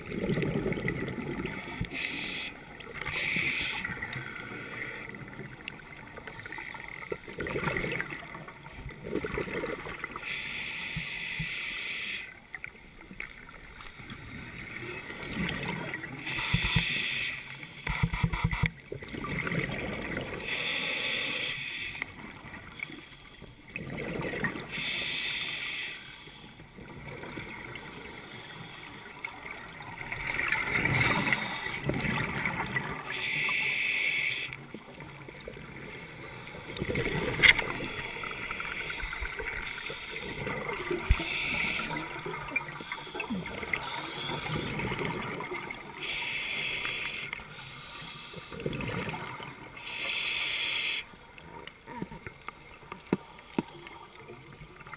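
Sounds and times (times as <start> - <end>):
regulator hiss on inhale: 1.7 - 5.1, 10.2 - 12.4, 16.2 - 18.6, 20.4 - 23.8, 24.7 - 26.8, 28.1 - 29.3, 31.1 - 31.9, 33.1 - 34.6, 37.7 - 40.4, 41.0 - 44.9, 45.8 - 48.9, 49.6 - 51.3, 53.2 - 54.2.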